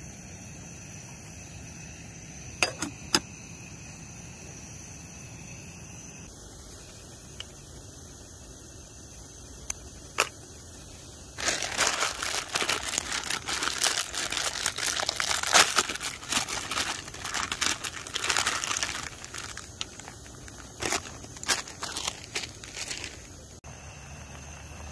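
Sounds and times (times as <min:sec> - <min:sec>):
plastic packet crinkling and tearing: 0:11.4 - 0:23.4.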